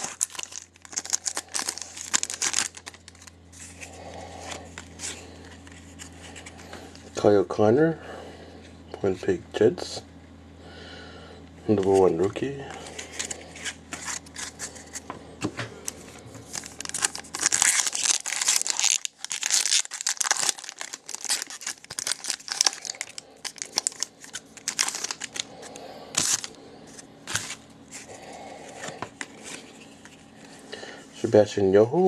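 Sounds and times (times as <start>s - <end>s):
foil wrapper crinkling and tearing: 0.0s - 7.0s, 12.8s - 15.0s, 15.8s - 28.2s.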